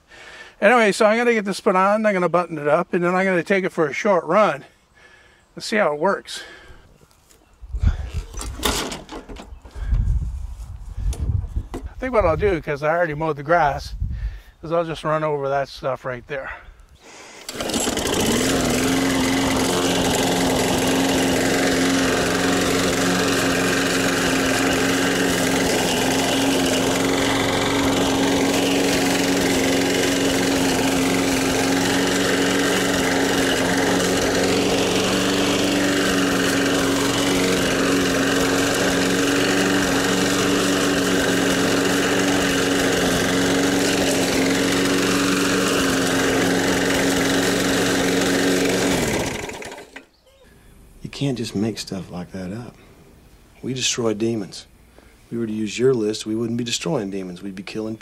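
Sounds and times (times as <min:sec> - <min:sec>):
lawn mower engine running: 0:07.9 - 0:09.8, 0:17.4 - 0:50.1.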